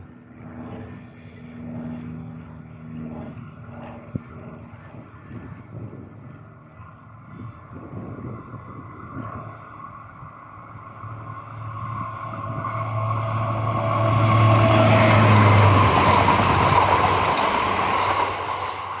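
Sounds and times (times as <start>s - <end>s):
train engine hum: 0.0s - 19.0s
train wheel and rail noise: 6.1s - 19.0s.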